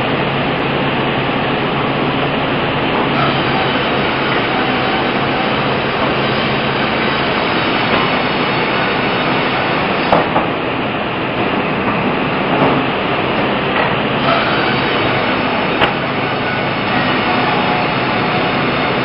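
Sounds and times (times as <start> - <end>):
band saw cutting log: 3.0 - 10.3, 14.2 - 19.0.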